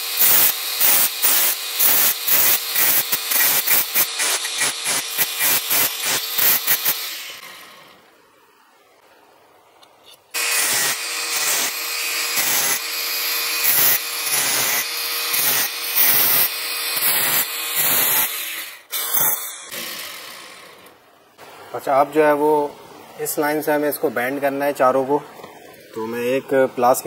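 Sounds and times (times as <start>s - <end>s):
disc cutting metal hiss: 0.0s - 7.6s, 10.4s - 20.4s.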